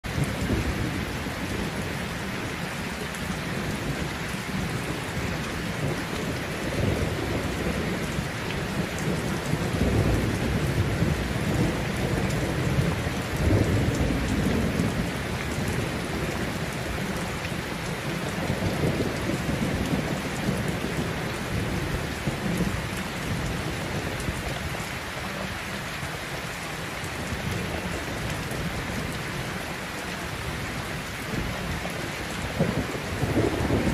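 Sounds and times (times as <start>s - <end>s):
heavy rain: 0.0s - 33.9s
thunder rumbling: 0.1s - 33.9s.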